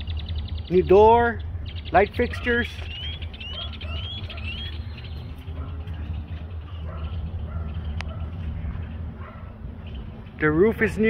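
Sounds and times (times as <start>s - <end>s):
bird rising chirps: 0.0s - 8.4s
steady low rumble: 0.0s - 11.0s.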